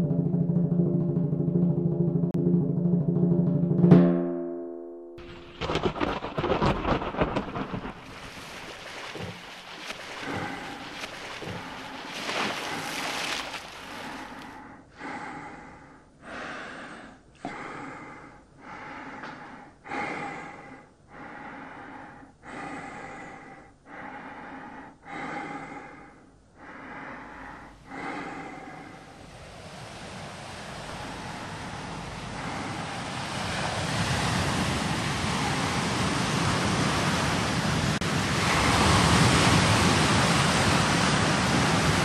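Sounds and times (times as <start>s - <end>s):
sea surf washing: 5.2s - 14.6s, 28.0s - 42.0s
heavy rhythmic breathing: 5.6s - 34.1s
rain and thunder noise: 33.4s - 42.0s.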